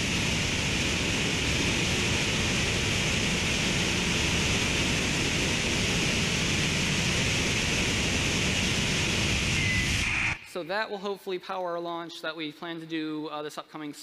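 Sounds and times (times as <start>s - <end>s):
rocket engine exhaust roar: 0.0s - 10.6s.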